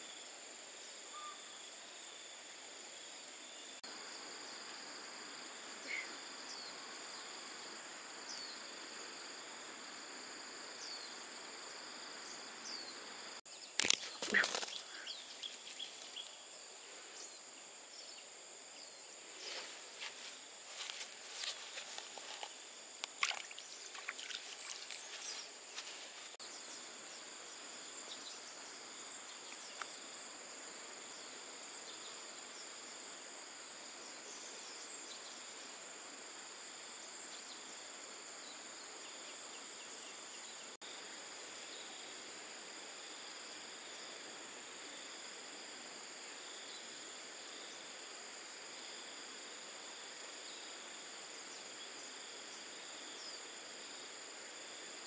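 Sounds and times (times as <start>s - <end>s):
soft even hiss: 0.0s - 37.7s
insects whining: 0.8s - 55.0s.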